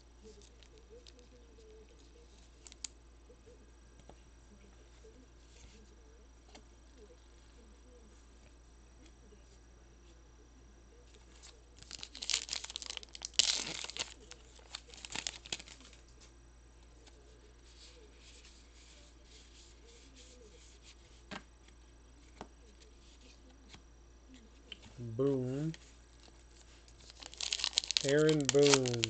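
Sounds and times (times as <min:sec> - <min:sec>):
wrapper tearing and crinkling: 0:11.8 - 0:16.0, 0:26.9 - 0:29.0.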